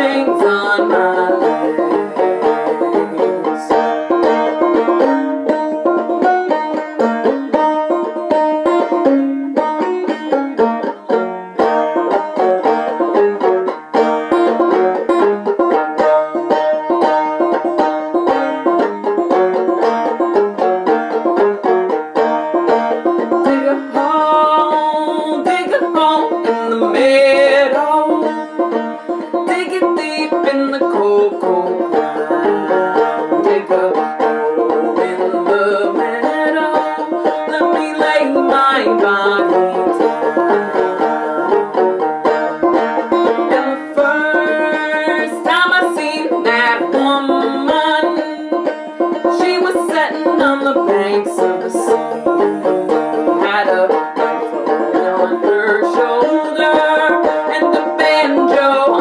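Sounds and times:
woman singing: 0.0s - 4.0s, 23.3s - 41.8s, 43.2s - 59.0s
banjo plucked and brushed: 0.0s - 59.0s.

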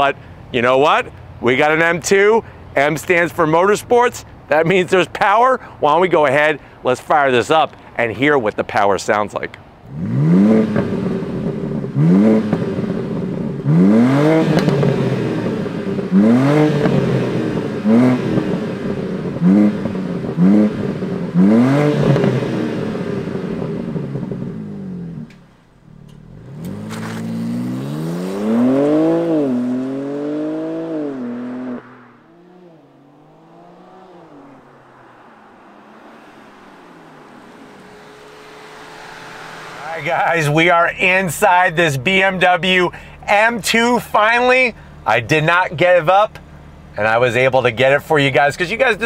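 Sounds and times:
car pulling away with upshifts: 9.9s - 43.2s
car engine revving: 9.9s - 49.0s.

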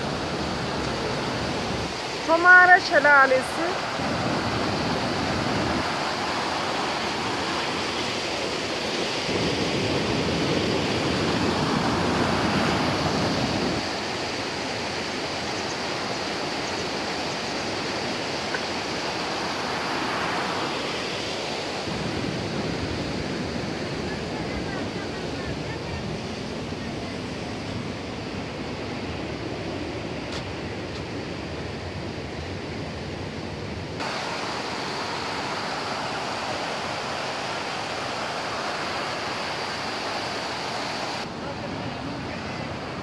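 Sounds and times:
waterfall rushing over rocks: 0.0s - 28.4s, 34.0s - 43.0s.

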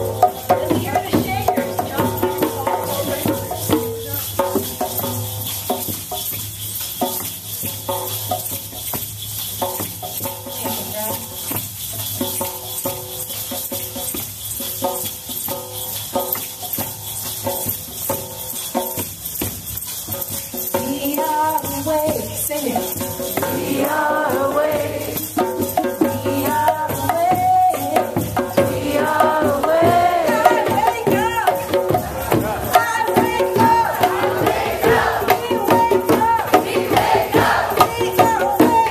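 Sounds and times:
voices calling and singing: 0.0s - 4.6s, 20.8s - 38.9s
hand shakers and rattles: 0.0s - 38.9s.

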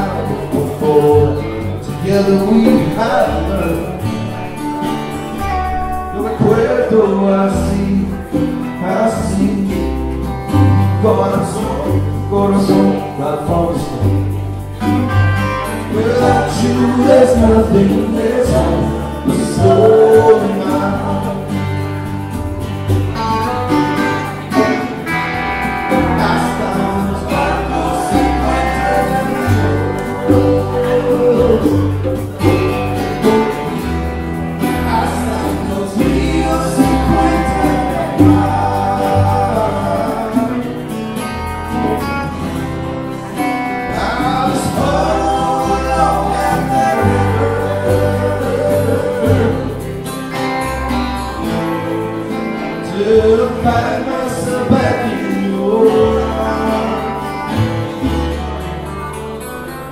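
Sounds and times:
person singing: 0.0s - 22.2s, 24.1s - 42.2s, 43.7s - 58.1s
plucked upright bass: 0.0s - 59.9s
small live band playing: 0.0s - 59.9s.

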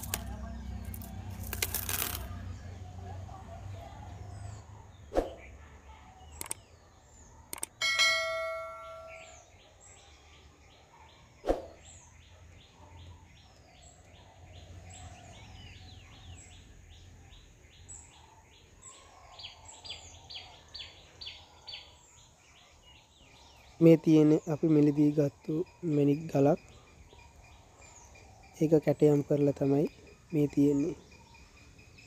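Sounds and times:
birds chirping: 0.0s - 32.0s
sharp clicks: 6.4s - 6.6s, 7.5s - 7.8s
bell-like ding: 7.8s - 9.4s.

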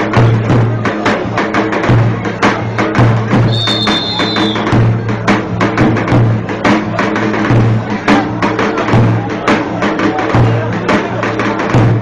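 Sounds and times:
bass drum beaten: 0.0s - 12.0s
high whistle-like tone: 3.5s - 4.7s.

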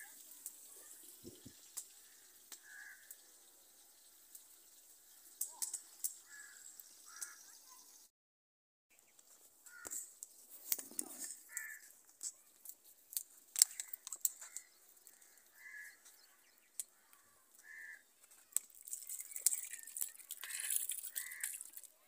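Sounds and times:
crow cawing: 2.0s - 3.1s, 5.6s - 7.6s, 9.6s - 10.0s, 11.0s - 11.9s, 13.6s - 16.1s, 16.8s - 18.6s, 19.7s - 21.8s
water pouring into a steel pot: 18.6s - 22.0s.

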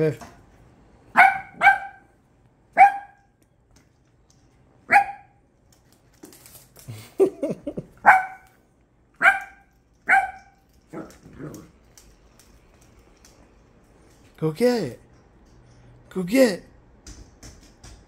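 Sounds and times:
dog barking: 1.1s - 2.1s, 2.8s - 3.3s, 4.9s - 5.4s, 8.0s - 8.6s, 9.2s - 11.1s.

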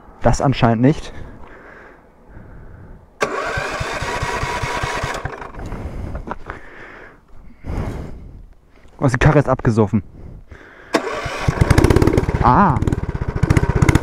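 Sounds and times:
small engine pulsing: 3.2s - 5.7s, 10.9s - 14.0s
electric starter cranking engine: 3.2s - 5.8s, 10.9s - 14.0s.

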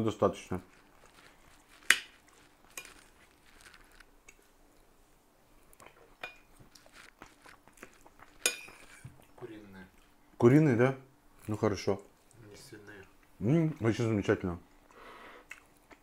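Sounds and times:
soft chewing: 0.2s - 10.4s, 11.3s - 16.0s
spoon clinking on ceramic plate: 8.4s - 9.0s.

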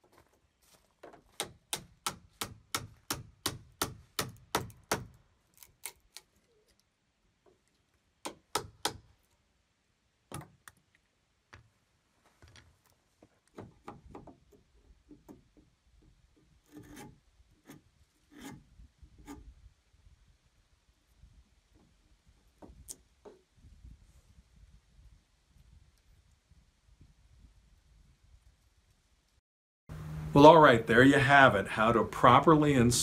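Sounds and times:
chisel scraping wood: 16.6s - 19.5s.

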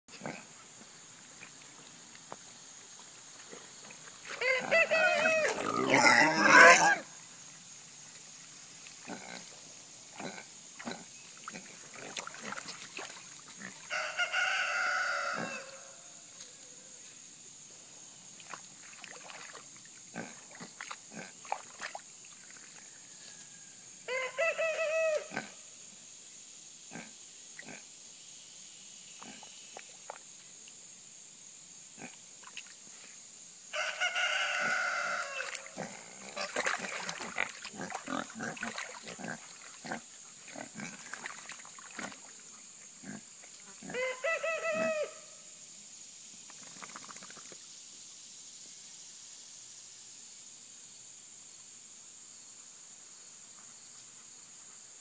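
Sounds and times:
pigs grunting: 0.1s - 0.6s, 4.3s - 7.0s, 9.0s - 9.6s, 10.2s - 12.7s, 20.1s - 21.4s, 35.8s - 41.3s, 43.0s - 44.2s
rooster crowing: 4.4s - 5.6s, 13.9s - 16.1s, 22.9s - 25.3s, 33.7s - 35.6s, 43.9s - 45.3s
mud splashing: 10.7s - 14.0s, 18.4s - 22.8s, 34.4s - 42.5s, 46.6s - 47.6s.

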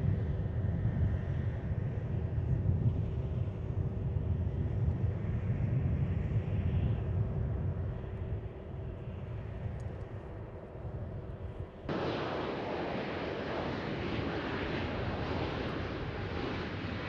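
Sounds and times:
jet aircraft flying past: 11.9s - 17.0s.

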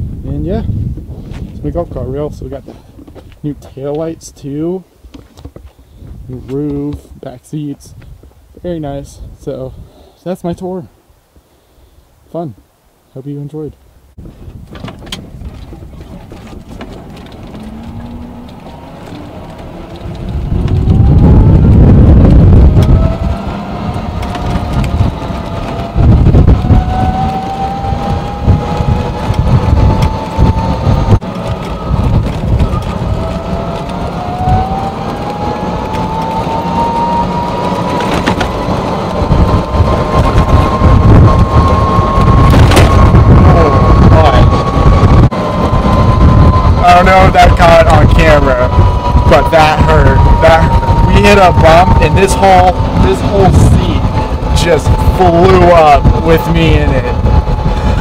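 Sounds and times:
heavy low rumble: 0.0s - 9.9s, 14.0s - 58.0s
electric motor whining: 16.4s - 58.0s.

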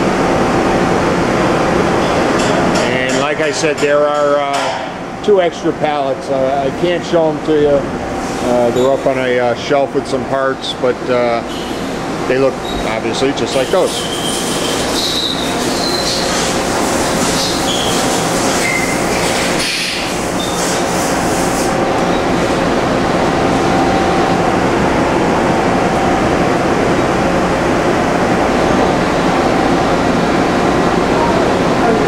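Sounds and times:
machining center whirring: 0.0s - 32.0s
high squeaks: 13.5s - 16.5s, 17.4s - 20.8s.

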